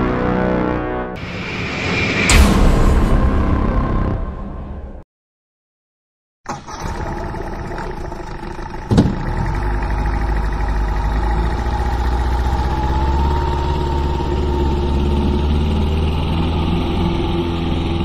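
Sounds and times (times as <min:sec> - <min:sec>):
boat engine running: 0:06.8 - 0:18.0.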